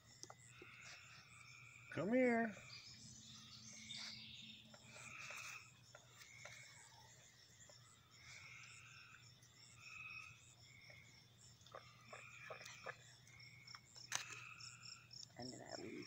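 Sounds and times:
frogs calling: 0.0s - 16.0s
high insect drone: 0.0s - 16.0s.

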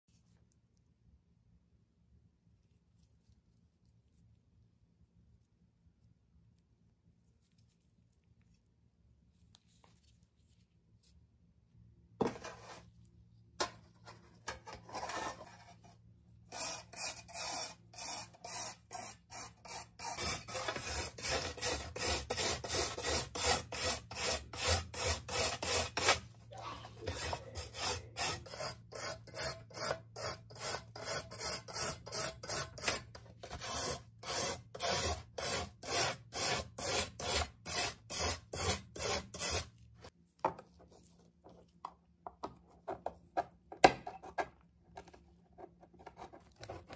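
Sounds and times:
knife blade scraped with abrasive: 16.5s - 26.2s, 26.8s - 39.7s.

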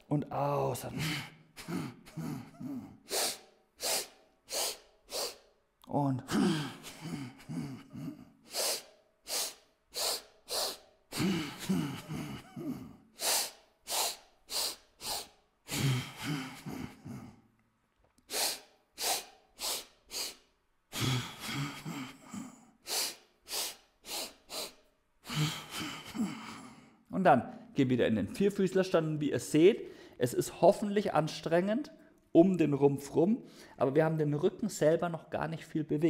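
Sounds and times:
faint voiced breath sound: 0.9s - 5.6s, 6.3s - 17.4s, 18.2s - 27.0s
man breathing forcefully: 1.0s - 5.6s, 6.3s - 17.4s, 18.3s - 27.0s.

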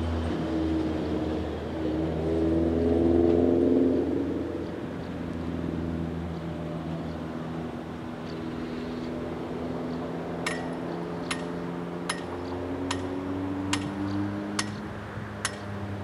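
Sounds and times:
diesel locomotive engine under throttle: 0.0s - 3.4s
sharp metallic clinks: 10.4s - 13.1s.

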